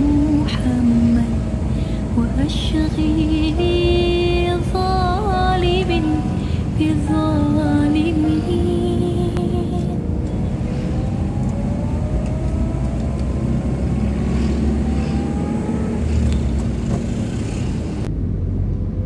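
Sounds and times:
engines accelerating: 0:00.0 - 0:19.0
traffic rumble of engines and tyres: 0:00.0 - 0:19.0.

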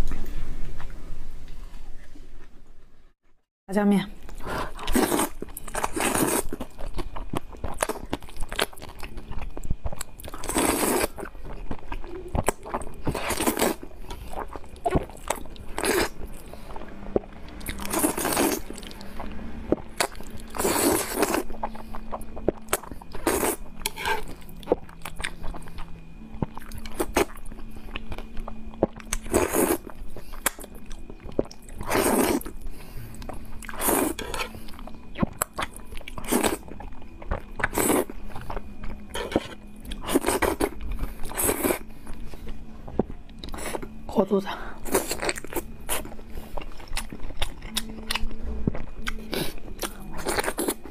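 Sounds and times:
smacking and chewing: 0:45.0 - 0:50.9.

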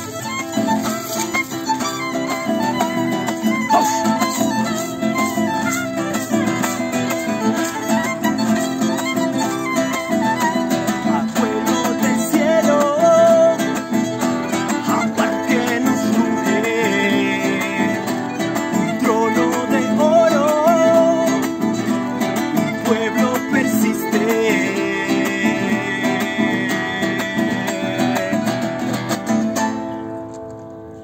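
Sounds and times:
violin melody with vibrato: 0:00.0 - 0:28.3
acoustic guitar accompaniment: 0:00.0 - 0:31.0.

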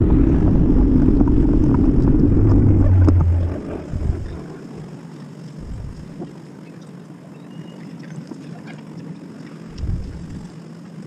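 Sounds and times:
deep hum: 0:00.0 - 0:05.0, 0:05.6 - 0:06.2, 0:09.7 - 0:10.5
wind and road rumble on microphone: 0:00.0 - 0:06.4, 0:09.6 - 0:11.0.

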